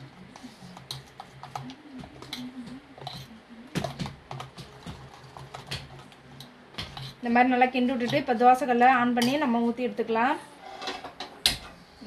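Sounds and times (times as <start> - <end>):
spoon scraping steel bowl: 3.0 - 3.4, 6.8 - 7.2.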